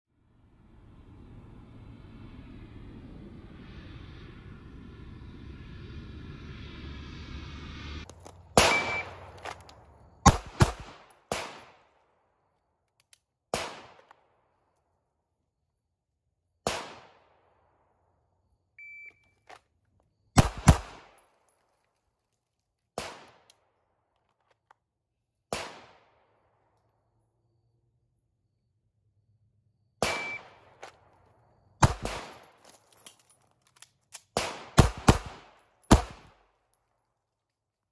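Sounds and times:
gunshots: 8.5 - 9.6, 10.2 - 11.9, 13.5 - 14.1, 20.4 - 21.2, 25.5 - 26.1, 30.0 - 30.8, 31.8 - 32.5, 34.4 - 36.4
short beep: 8.7 - 9.2, 18.8 - 19.4, 30.1 - 30.5.

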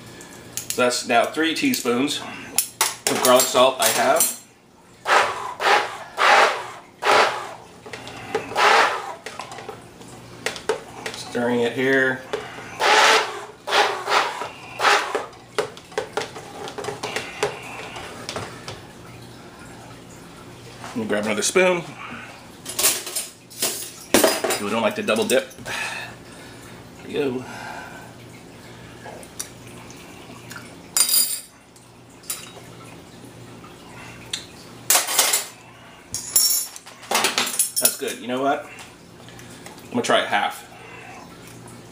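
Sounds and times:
blender shaft sloshing in salsa: 5.0 - 19.8.

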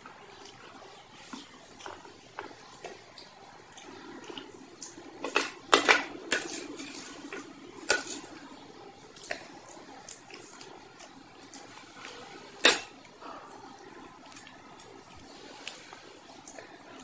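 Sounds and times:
wet eating sounds: 0.0 - 17.0.

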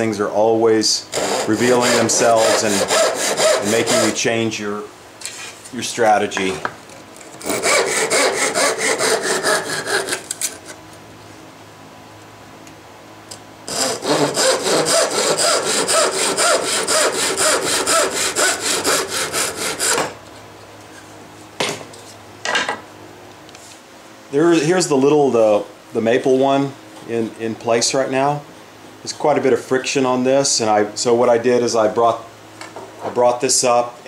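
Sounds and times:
handsaw cutting plywood: 1.1 - 4.2, 7.4 - 10.6, 13.7 - 20.2.

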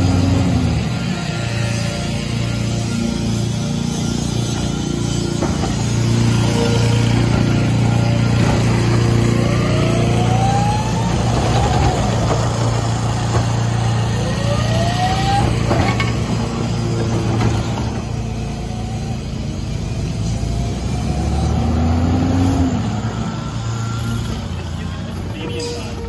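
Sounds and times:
garbage truck engine running: 0.0 - 26.0
hydraulic lift whining: 0.0 - 26.0.

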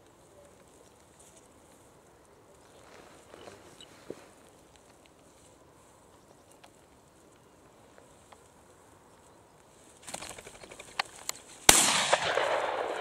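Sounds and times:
loud shotgun shot: 11.7 - 13.0.

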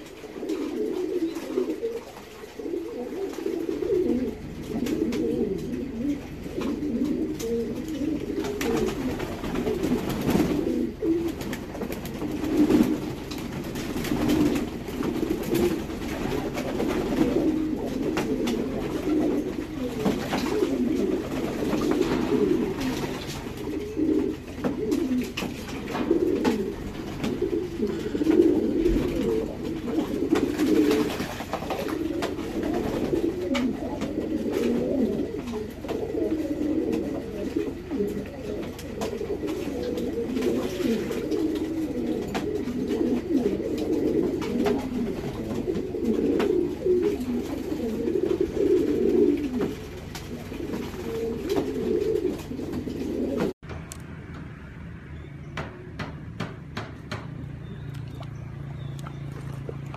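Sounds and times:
pigeons cooing: 0.0 - 53.6, 55.6 - 59.9.

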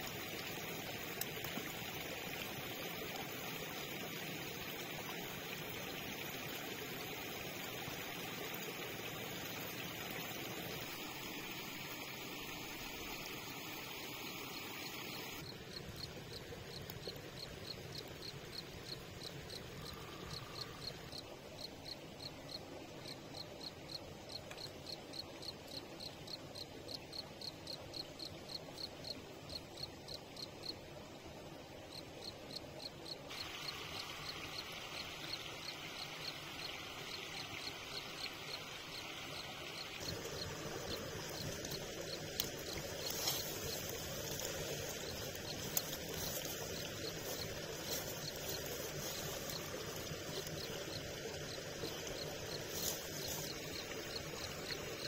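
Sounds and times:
background hum of woods: 0.0 - 55.0
high hiss of insects: 0.0 - 55.0
cricket chirping: 5.9 - 30.8, 31.9 - 55.0.

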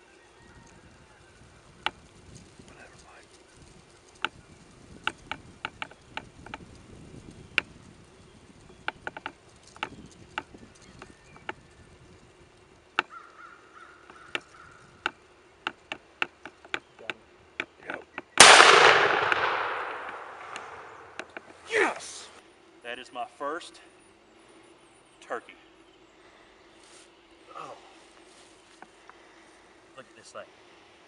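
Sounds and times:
sharp ticks and clicks: 1.8 - 21.5
shotgun blast with echo: 18.4 - 21.2.

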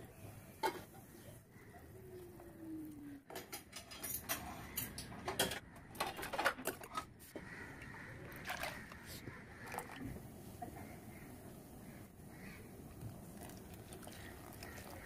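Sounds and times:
cookware clinking and knocking: 3.3 - 7.0.

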